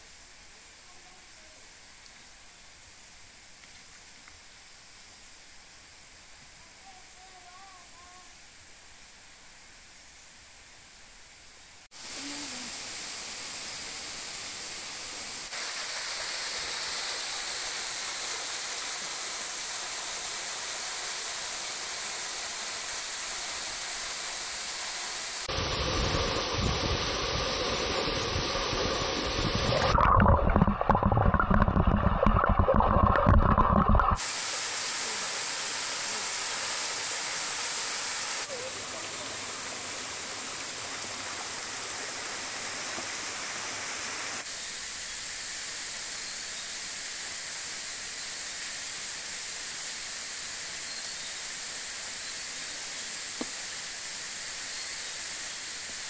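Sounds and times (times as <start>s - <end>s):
running water rushing: 11.9s - 56.0s
deep rumble: 25.5s - 34.2s.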